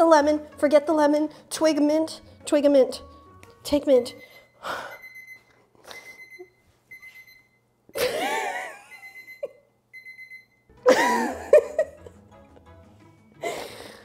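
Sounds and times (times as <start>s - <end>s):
electronic timer beeping: 4.0s - 8.1s, 8.8s - 10.7s
woman laughing: 8.0s - 9.7s, 10.8s - 12.2s.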